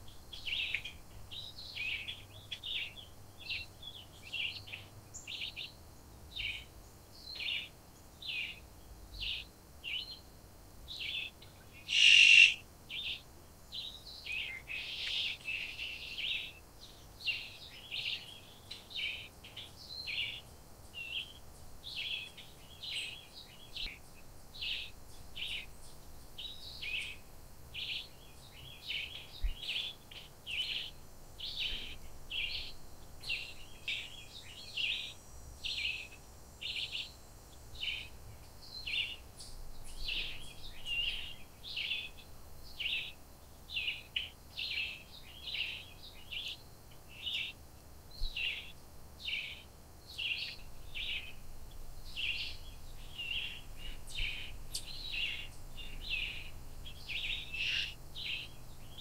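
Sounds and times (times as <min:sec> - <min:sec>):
wild birds chirping: 0:00.0 - 0:59.0
loud harsh bird call: 0:11.8 - 0:12.7.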